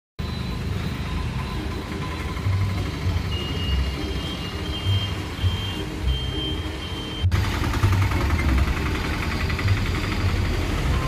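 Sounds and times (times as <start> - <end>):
high-pitched beeps: 0.2 - 7.4
traffic rumbling: 0.2 - 11.0.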